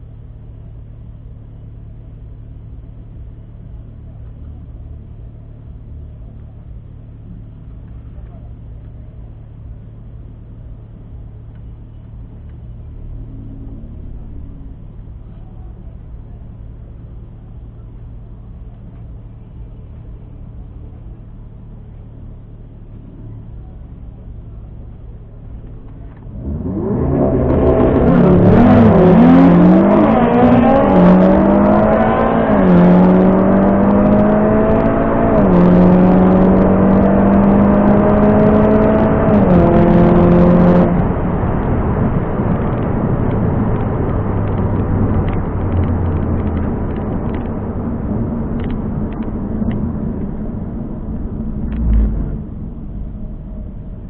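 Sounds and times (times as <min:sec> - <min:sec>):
car engine accelerating: 0:00.0 - 0:54.0.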